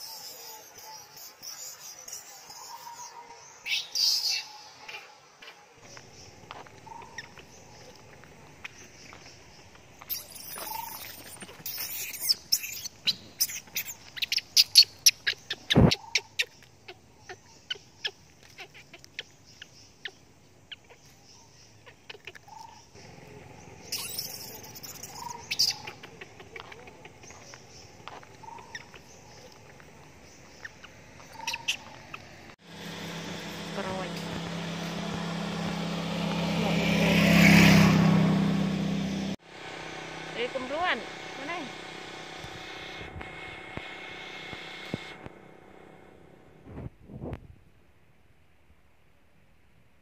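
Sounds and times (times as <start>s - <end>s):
faint chirping animal calls: 0.0s - 37.9s.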